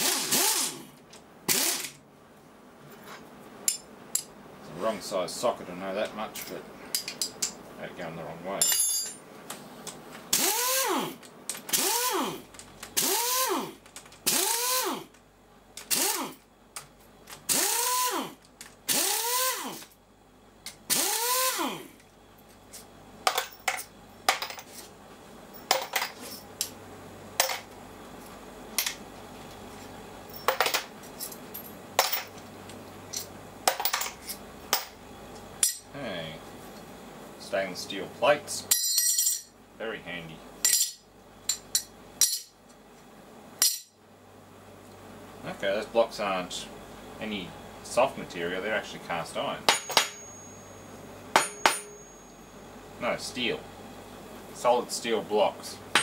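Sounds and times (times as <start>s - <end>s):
impact wrench whining: 0.0s - 2.0s, 10.3s - 15.2s, 15.8s - 16.4s, 17.4s - 19.9s, 20.9s - 22.0s.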